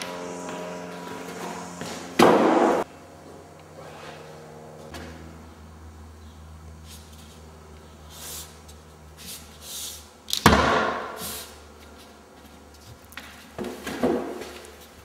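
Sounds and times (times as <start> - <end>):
low hum: 0.0 - 8.1.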